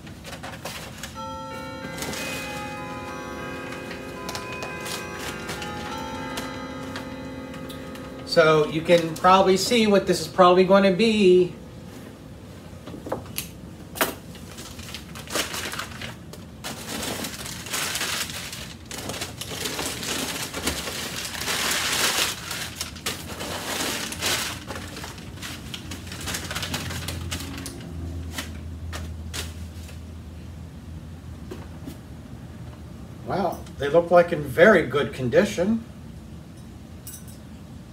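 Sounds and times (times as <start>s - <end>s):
newspaper rustling and crinkling: 0.0s - 1.2s, 14.2s - 30.1s.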